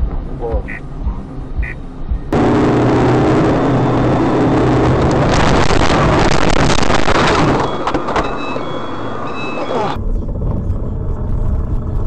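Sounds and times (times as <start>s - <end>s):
car engine running hard: 0.0s - 12.0s
short high beeps: 7.6s - 10.0s.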